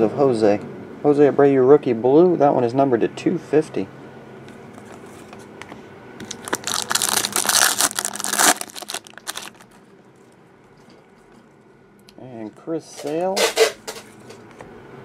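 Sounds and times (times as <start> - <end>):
foil wrapper tearing and crinkling: 6.2 - 9.8.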